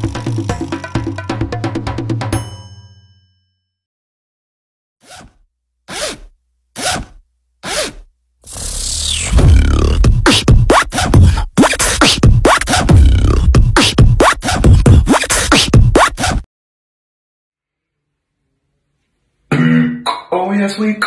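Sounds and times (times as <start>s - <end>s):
vocal beatboxing: 9.3s - 16.4s, 19.5s - 20.3s
man's voice: 20.1s - 21.0s.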